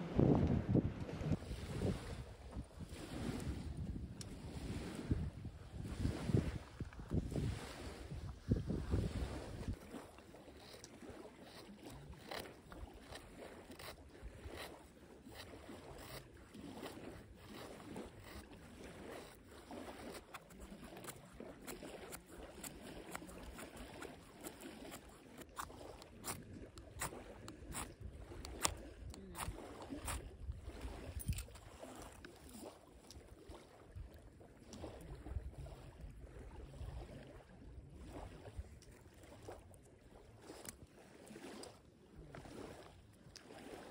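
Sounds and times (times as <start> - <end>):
knife scraping wood: 10.4 - 30.2.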